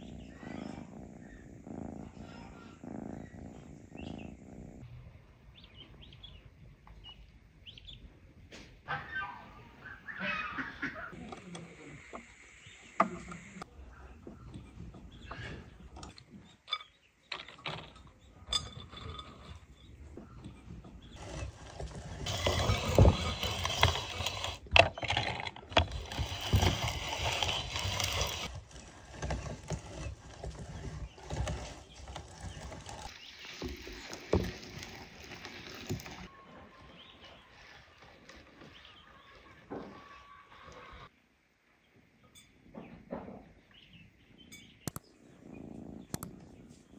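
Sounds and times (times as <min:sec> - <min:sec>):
metal mincer grinding walnuts: 0:21.1 - 0:36.3.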